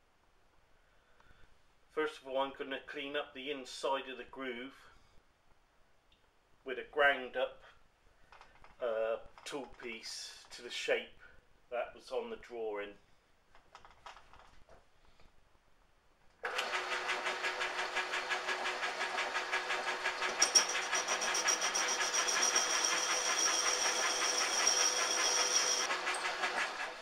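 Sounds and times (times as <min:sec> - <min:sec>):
metal lathe motor running: 0:16.4 - 0:27.0
high whine of tool cutting metal: 0:16.5 - 0:27.0.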